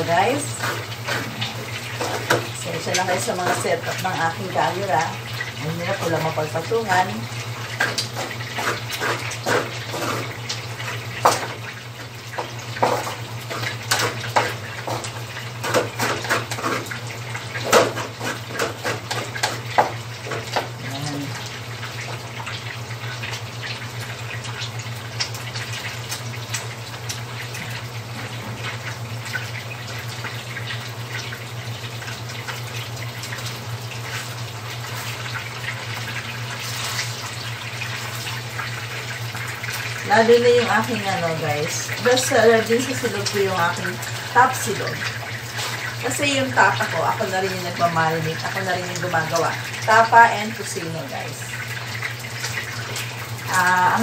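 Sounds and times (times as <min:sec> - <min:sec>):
sausages sizzling: 0:00.0 - 0:54.0
wooden spatula scraping a pan: 0:00.4 - 0:03.8, 0:07.8 - 0:10.4, 0:12.8 - 0:17.0, 0:17.7 - 0:20.5.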